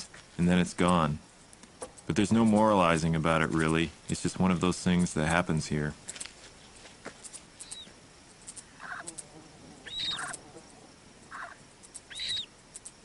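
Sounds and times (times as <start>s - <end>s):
lower short animal calls: 8.8s - 12.5s
high rising and falling animal call: 8.8s - 12.6s.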